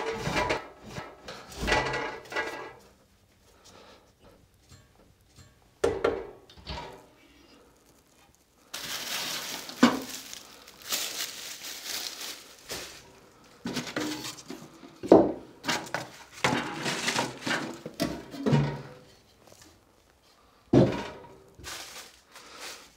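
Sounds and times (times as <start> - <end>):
firewood clattering against metal: 0.0 - 2.9, 4.6 - 7.1, 8.8 - 19.7, 20.7 - 21.9.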